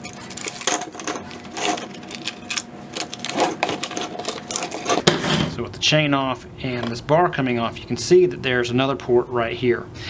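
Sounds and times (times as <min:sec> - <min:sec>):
saw chain clinking and rattling: 0:00.0 - 0:05.0.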